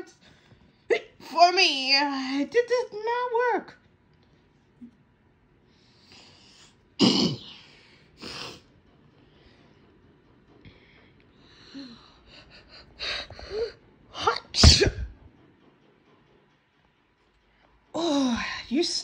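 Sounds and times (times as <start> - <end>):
loud sneeze: 14.6 - 15.1.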